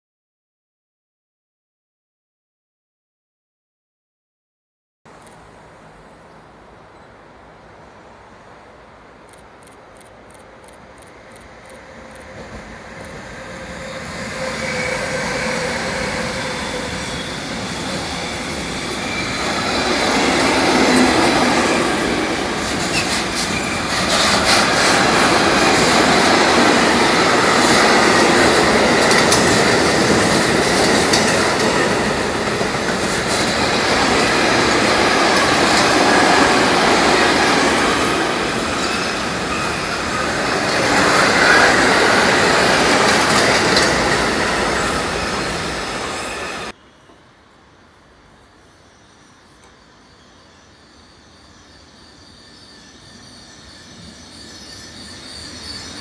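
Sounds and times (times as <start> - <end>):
train wheels on rails: 9.2 - 47.2, 49.2 - 56.0.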